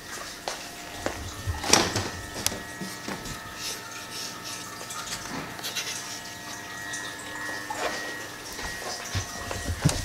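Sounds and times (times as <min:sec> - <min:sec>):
faint steady whine: 0:00.0 - 0:10.0
fluid trickling and hissing: 0:00.0 - 0:10.0.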